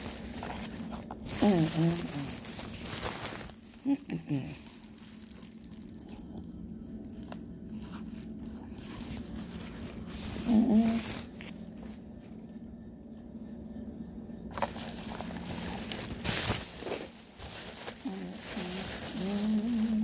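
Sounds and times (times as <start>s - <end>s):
crunching chewing: 0.0s - 12.5s, 14.5s - 20.0s
steady low hum: 0.0s - 20.0s
person humming: 1.3s - 2.6s, 3.8s - 4.8s, 10.3s - 11.4s, 17.9s - 20.0s.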